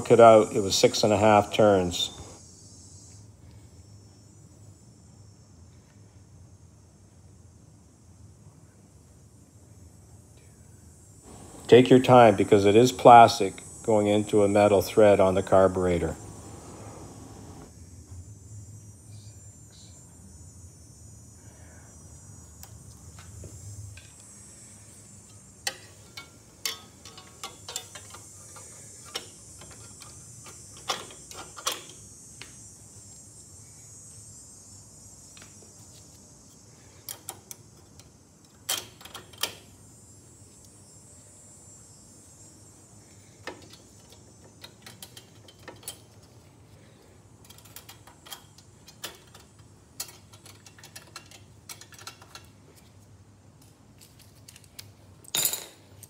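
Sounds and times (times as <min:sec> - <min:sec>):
faint steady hiss: 0:00.0 - 0:56.0
clicks of parts being handled: 0:25.7 - 0:32.0, 0:47.4 - 0:52.9, 0:53.6 - 0:56.0.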